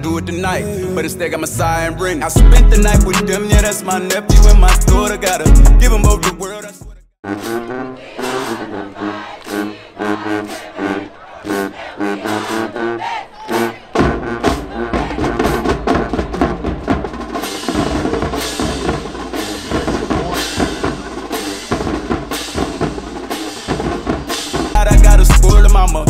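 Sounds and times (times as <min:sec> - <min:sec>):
music with heavy bass and drums: 0:02.2 - 0:07.0, 0:14.0 - 0:26.0.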